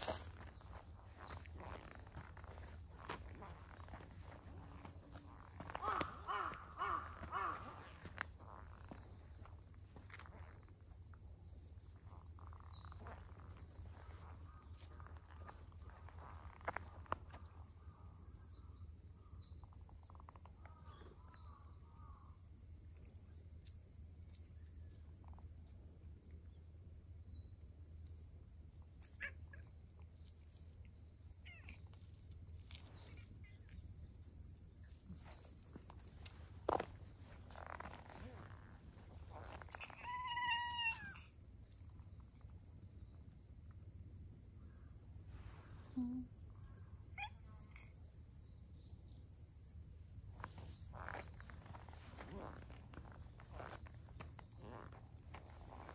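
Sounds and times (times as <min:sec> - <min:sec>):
insect chorus buzzing: 0:00.0 - 0:55.9
faint ticks and rustles: 0:28.8 - 0:42.6, 0:49.6 - 0:55.9.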